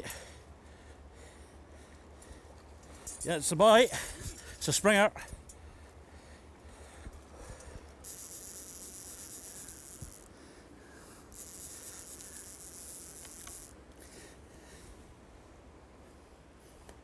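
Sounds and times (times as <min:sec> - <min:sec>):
fly reel ratchet buzzing: 0:07.4 - 0:13.8.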